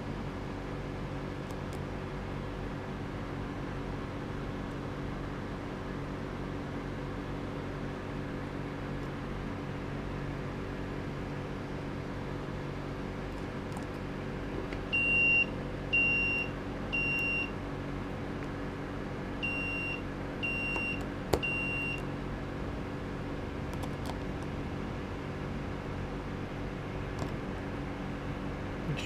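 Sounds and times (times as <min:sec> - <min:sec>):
steady electrical hum: 0:00.0 - 0:29.0.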